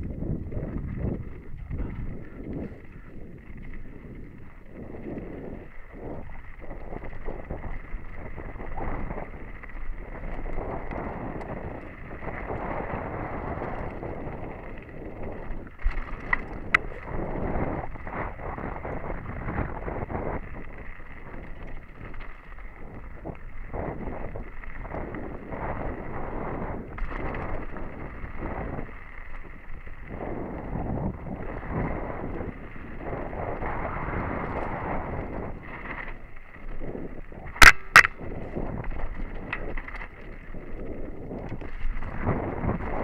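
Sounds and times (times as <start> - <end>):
bike rattling over bumps: 0.0 - 43.0
bike tyres rolling on dirt: 0.0 - 43.0
wind on microphone: 0.0 - 43.0
sharp clacks: 37.5 - 38.5.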